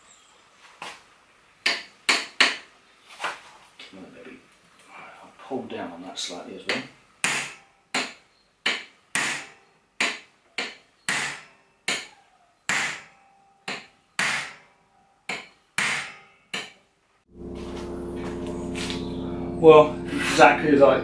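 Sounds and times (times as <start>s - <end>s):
hammer striking metal: 6.7s - 12.1s, 12.7s - 14.7s, 15.3s - 16.8s.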